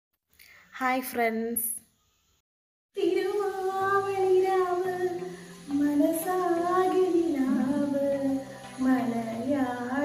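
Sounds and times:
woman singing slow melody: 3.0s - 10.0s.

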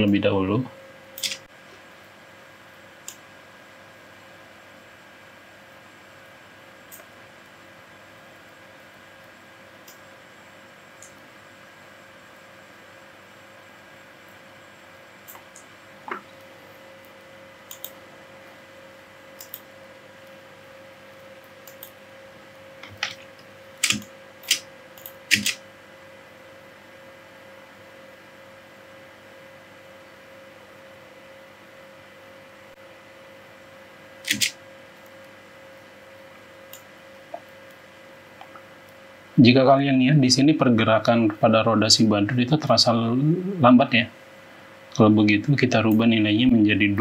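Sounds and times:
faint steady hum: 0.0s - 47.0s
computer mouse clicks: 1.2s - 1.5s, 3.0s - 3.2s, 6.9s - 7.1s, 9.8s - 10.0s, 17.0s - 18.0s, 19.4s - 20.4s, 21.1s - 22.0s, 22.8s - 25.6s, 34.2s - 35.2s, 36.7s - 37.8s.

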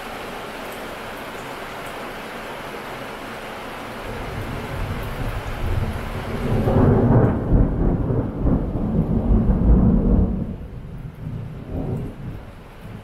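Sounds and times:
steady rain: 0.0s - 13.0s
rolling thunder: 4.1s - 13.0s.

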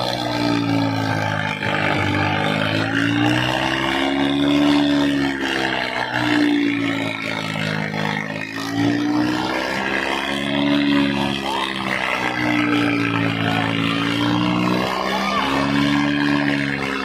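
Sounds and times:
tractor diesel engines labouring: 0.0s - 17.0s
crowd noise: 11.6s - 17.0s.

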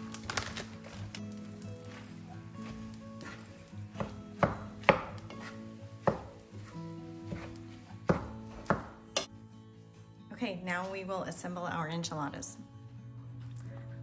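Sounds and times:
soft background music: 0.0s - 14.0s
utensil scraping a frying pan: 0.8s - 4.1s, 4.7s - 7.9s.

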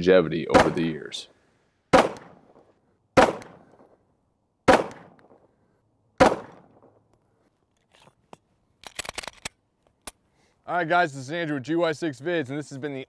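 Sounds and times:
pistol shots: 0.5s - 0.9s, 1.9s - 4.0s, 4.6s - 5.5s, 6.2s - 7.0s.

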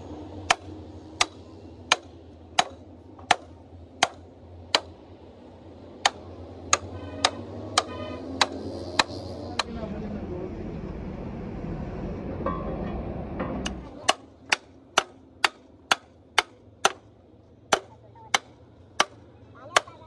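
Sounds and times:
hammer striking chisel on steel: 0.4s - 4.9s, 6.0s - 9.7s, 12.5s - 17.1s, 17.7s - 20.0s.

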